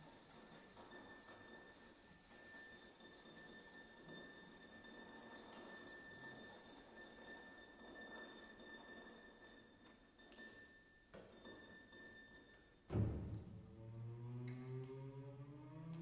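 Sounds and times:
soft chamber music: 0:12.9 - 0:16.0.

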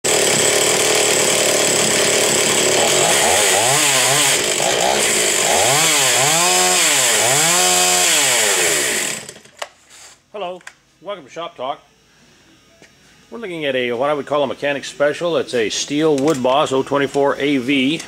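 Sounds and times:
chainsaw revving: 0:00.1 - 0:09.5.

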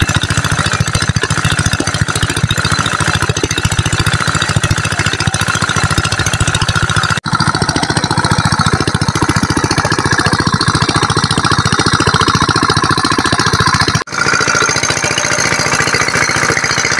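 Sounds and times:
diesel engine knocking: 0:00.0 - 0:16.9
water gushing from pump: 0:00.0 - 0:16.9.

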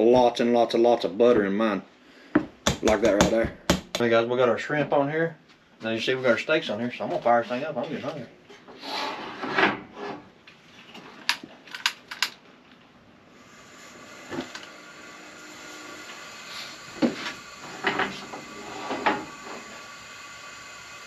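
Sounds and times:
gas burner hissing: 0:13.3 - 0:21.0.

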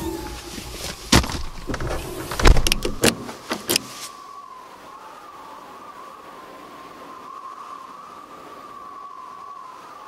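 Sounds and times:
car trunk slamming shut: 0:01.1 - 0:03.2
car door hardware clicks: 0:01.1 - 0:03.9.

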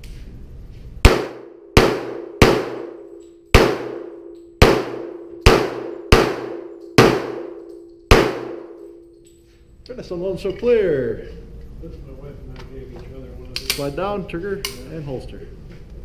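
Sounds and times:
handgun shots with ringing echo: 0:01.0 - 0:09.1.

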